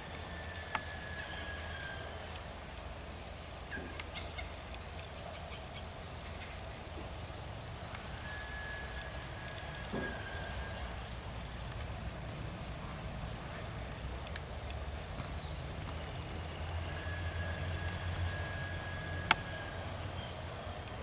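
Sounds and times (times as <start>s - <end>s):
steady low rumble: 0.0s - 21.0s
thin high whine: 0.0s - 21.0s
faint held whistle: 8.2s - 10.8s.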